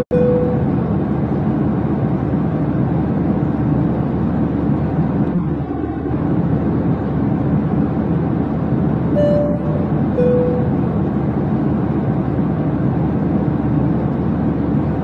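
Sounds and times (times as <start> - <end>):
high pitched tone: 0.0 - 0.7, 9.2 - 10.9
engine and air rumble: 0.0 - 15.0.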